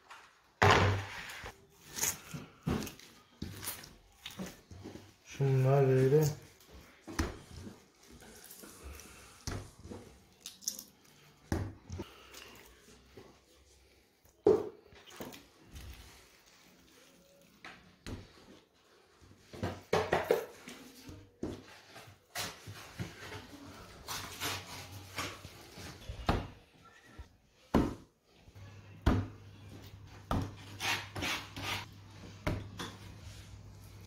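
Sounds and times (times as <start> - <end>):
hands kneading dough: 1.1 - 19.9.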